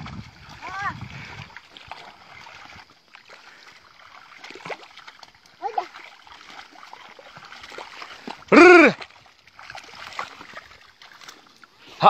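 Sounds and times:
mud and water sloshing: 0.0s - 12.0s
loud short voice call: 8.5s - 9.0s.

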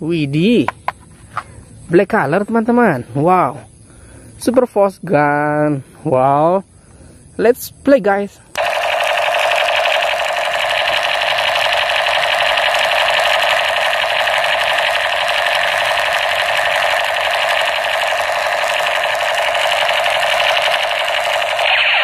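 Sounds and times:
toy machine gun rattle: 8.6s - 22.0s.

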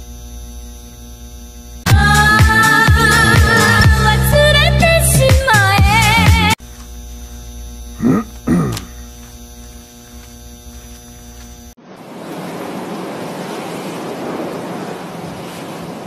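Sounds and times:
steady electrical hum: 0.0s - 1.9s, 5.9s - 11.8s.

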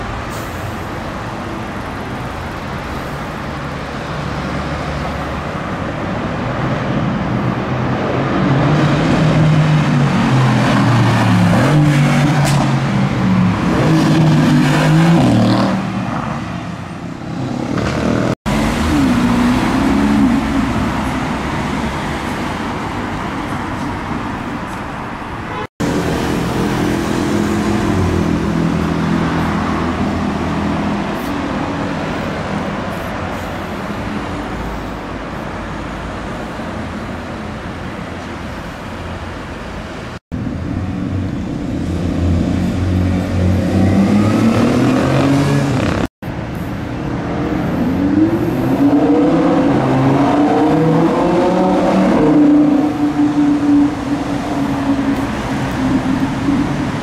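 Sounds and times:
sports car engines accelerating: 40.6s - 46.1s, 47.2s - 57.0s.

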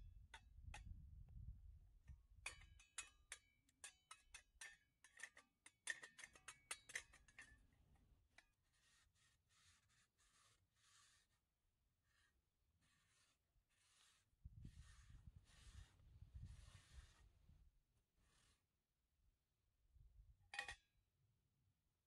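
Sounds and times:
metal camping gear clinking: 20.5s - 20.8s.

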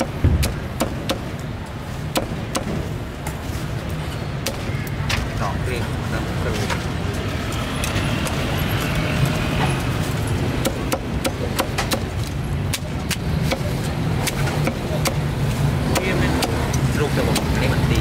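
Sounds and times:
traffic engine hum: 0.0s - 18.0s
sharp irregular clicks and knocks: 10.6s - 15.2s
people talking: 15.9s - 18.0s.

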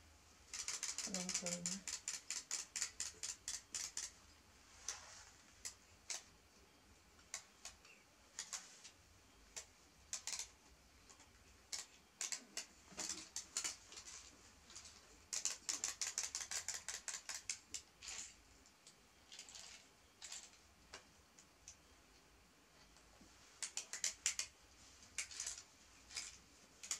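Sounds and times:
wind-up toy clicking: 0.5s - 4.2s, 14.8s - 18.3s, 23.6s - 24.5s.

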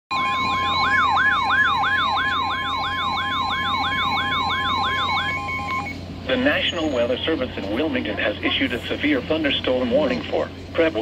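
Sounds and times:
steady high alarm tone: 0.1s - 6.0s
warbling siren: 0.1s - 6.0s.

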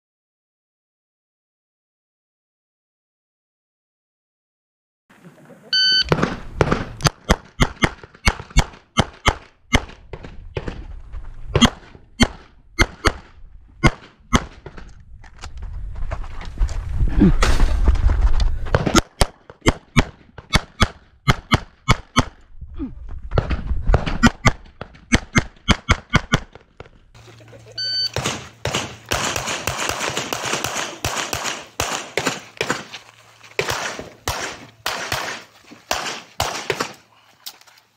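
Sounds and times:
shot timer beep: 5.8s - 6.1s, 27.8s - 28.2s
rapid pistol shots: 6.1s - 10.7s, 11.6s - 14.6s, 18.8s - 22.4s, 24.2s - 26.6s, 28.1s - 32.9s, 33.6s - 37.0s.

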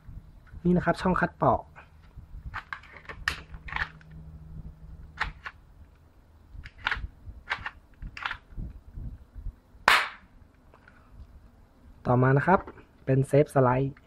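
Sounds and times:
sharp loud click: 9.8s - 10.3s.

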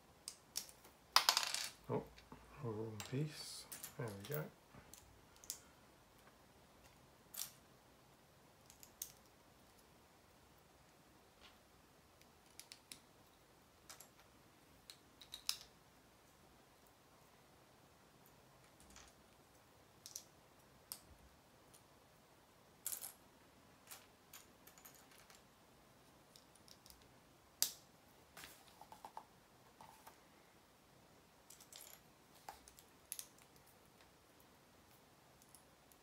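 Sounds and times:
plastic toy bricks clicking: 12.4s - 13.0s, 14.8s - 15.7s.

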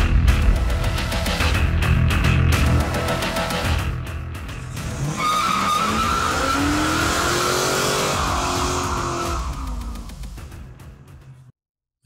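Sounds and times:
car engine revving: 2.5s - 10.2s
tyres squealing: 5.0s - 7.5s.

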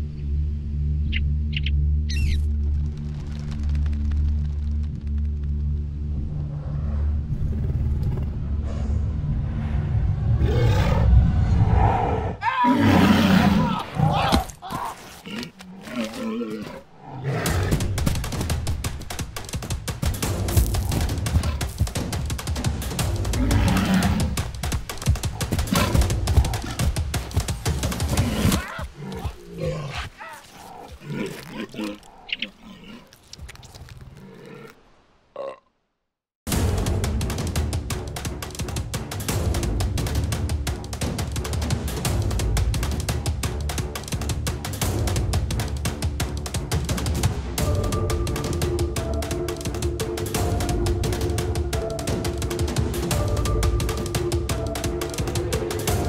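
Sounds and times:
deep rumbling dinosaur growl: 6.4s - 14.2s
creature growls and grunts: 12.1s - 17.8s, 28.1s - 33.5s
drum-heavy film music: 17.2s - 29.4s, 36.5s - 56.0s.

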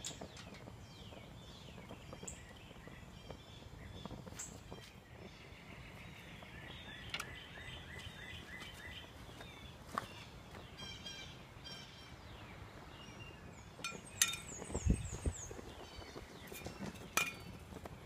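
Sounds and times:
low outdoor hum: 0.0s - 18.0s
songbirds chirping: 0.0s - 18.0s
metal ring clicking on skillet: 13.8s - 14.6s.

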